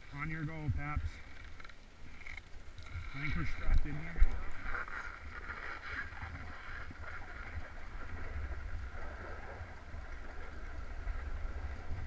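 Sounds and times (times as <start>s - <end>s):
wind buffeting microphone: 3.0s - 12.0s.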